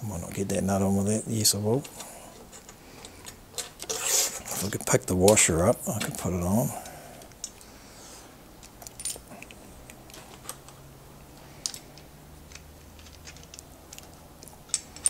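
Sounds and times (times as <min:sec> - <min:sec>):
small metal parts clinking: 0:08.6 - 0:10.8, 0:11.4 - 0:15.0.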